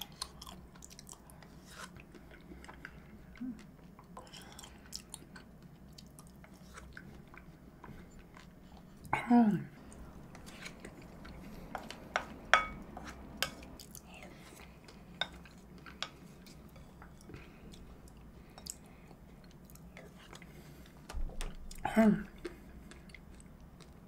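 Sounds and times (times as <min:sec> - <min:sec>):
quiet eating sounds: 0:00.0 - 0:24.0.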